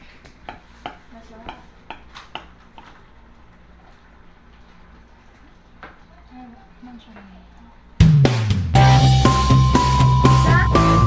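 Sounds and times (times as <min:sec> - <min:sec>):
knife tapping against a plate: 0:00.4 - 0:03.0.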